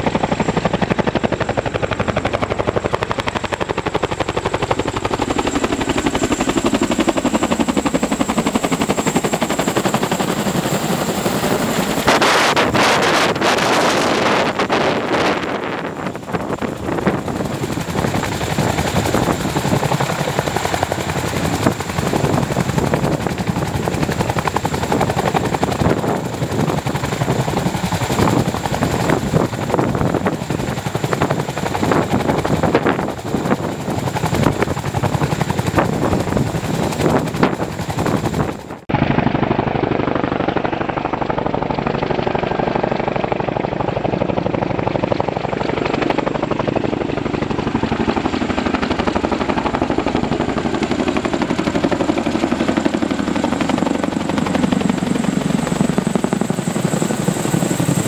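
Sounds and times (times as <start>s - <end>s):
helicopter rotors beating: 0.0s - 58.0s
high engine whine: 38.2s - 43.4s.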